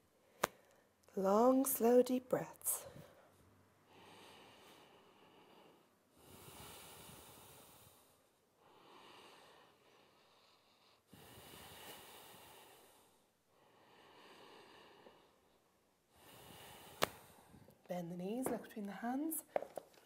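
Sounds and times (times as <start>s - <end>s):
deep breathing through nose: 3.9s - 17.8s.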